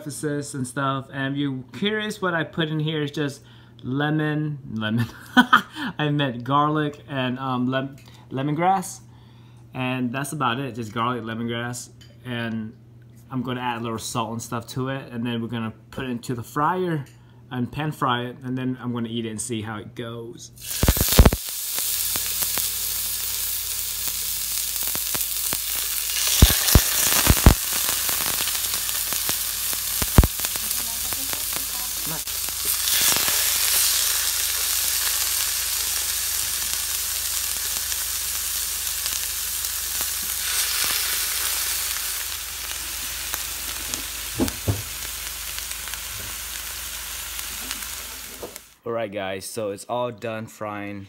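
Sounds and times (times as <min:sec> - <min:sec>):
fish sizzling in hot oil: 0:20.6 - 0:48.8.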